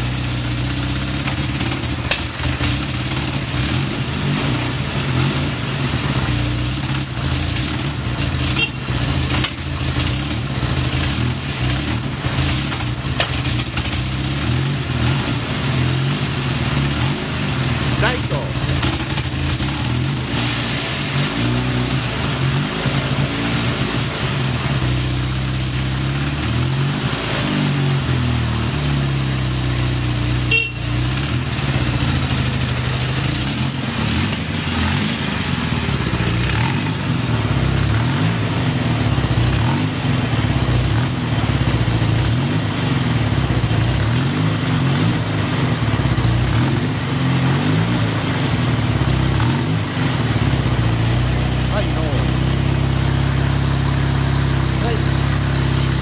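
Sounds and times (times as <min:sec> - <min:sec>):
motorcycle engine idling: 0:04.8 - 0:15.0, 0:17.4 - 0:20.1, 0:29.0 - 0:42.1, 0:49.9 - 0:56.0.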